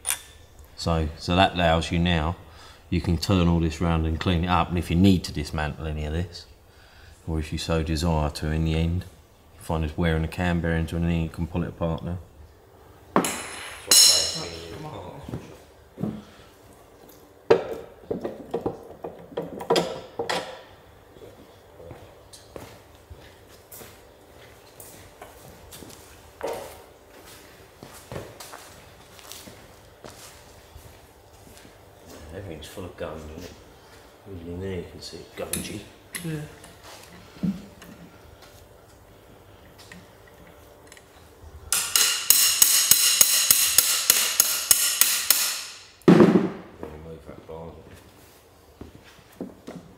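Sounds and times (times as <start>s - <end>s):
rapid metallic strikes ringing: 13.2s - 14.9s, 41.7s - 46.0s.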